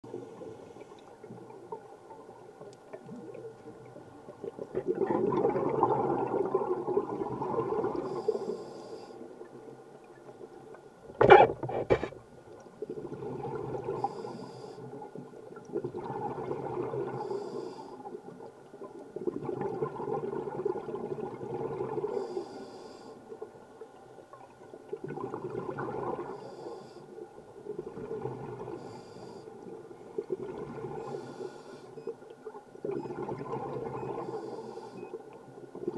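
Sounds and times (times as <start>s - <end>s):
exhaled bubbles rumbling: 1.2s - 8.2s, 12.8s - 14.0s, 15.2s - 17.3s, 18.8s - 22.1s, 24.3s - 26.3s, 27.6s - 28.8s, 29.7s - 31.1s, 32.8s - 34.3s
regulator hissing inhale: 8.0s - 9.2s, 14.0s - 15.0s, 17.2s - 18.1s, 22.1s - 23.2s, 26.3s - 27.2s, 28.8s - 29.6s, 31.0s - 32.0s, 34.2s - 35.1s.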